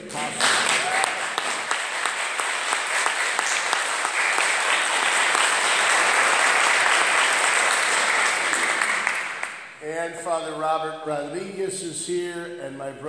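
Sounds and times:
congregation applauding: 0.0 - 9.8.

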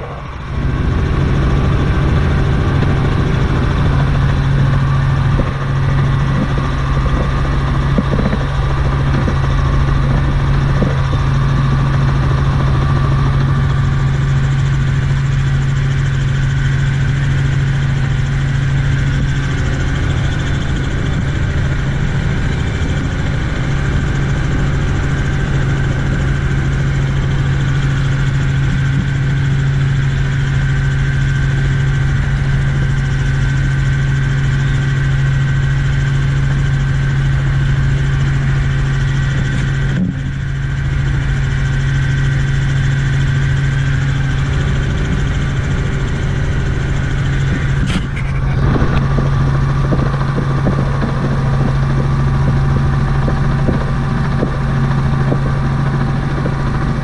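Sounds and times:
helicopter engine and rotors: 0.0 - 57.0.

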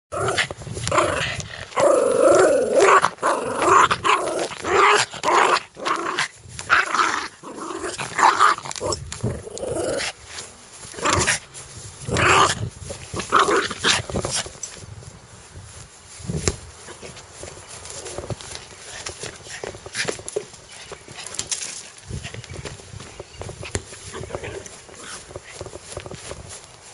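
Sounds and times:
dog growling: 0.1 - 10.2.

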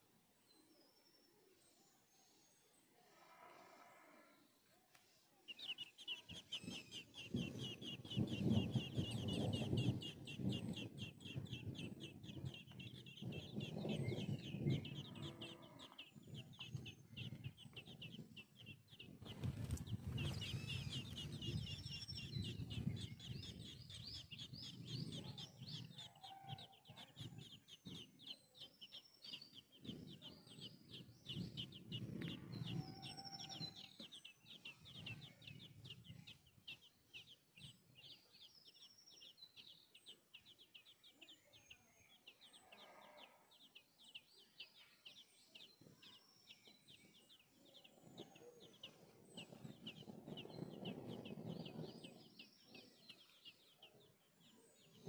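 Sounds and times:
nestlings begging calls: 5.5 - 41.4, 42.1 - 53.4
low rumbling rustle: 7.6 - 25.9.

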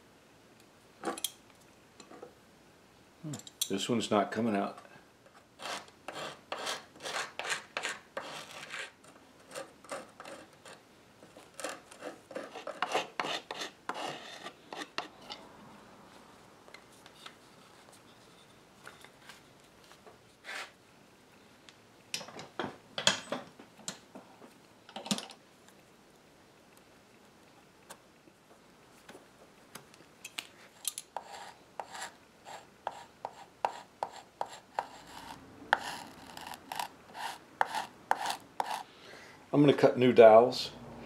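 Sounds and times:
wood scraping and rubbing: 31.2 - 38.8.

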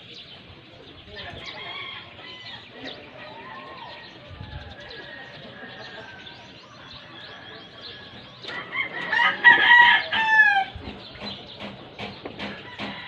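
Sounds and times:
rooster crowing: 3.2 - 10.8.

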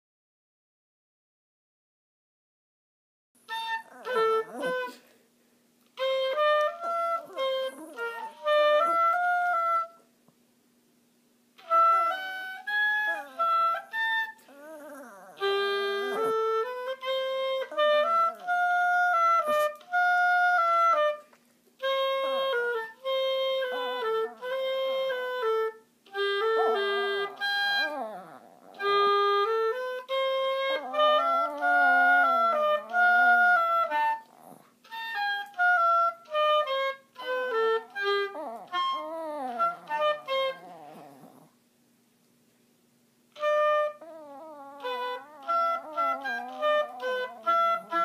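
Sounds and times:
oboe melody: 3.5 - 5.1, 6.0 - 10.1, 11.6 - 41.4, 43.4 - 48.0
dog howling: 3.8 - 5.0, 6.7 - 9.2, 11.9 - 16.6, 23.5 - 25.3, 26.2 - 29.8, 30.5 - 34.7, 37.5 - 41.5, 43.6 - 48.0.

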